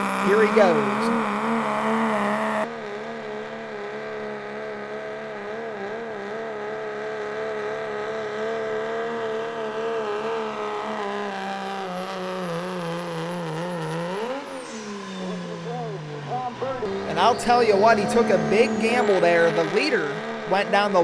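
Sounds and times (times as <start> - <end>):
high turbo whistle: 0.0 - 2.7, 13.7 - 20.5
truck engine at full throttle: 0.0 - 21.0.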